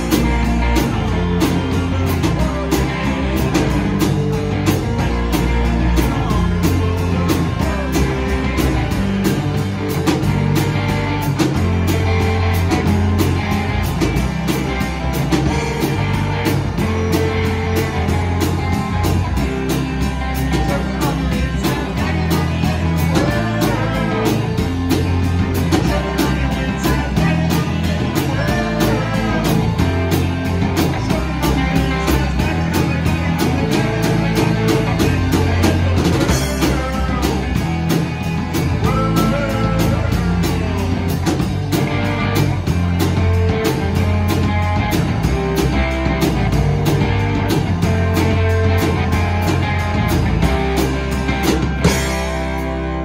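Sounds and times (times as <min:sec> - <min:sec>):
person singing: 0:00.0 - 0:11.6, 0:15.4 - 0:41.2
drum kit steady beat: 0:00.0 - 0:53.0
electric guitars: 0:00.0 - 0:53.0.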